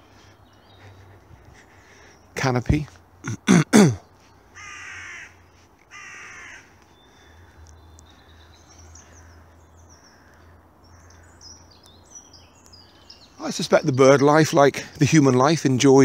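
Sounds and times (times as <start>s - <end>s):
small birds twittering: 0.0s - 16.0s
crow cawing: 4.5s - 11.8s.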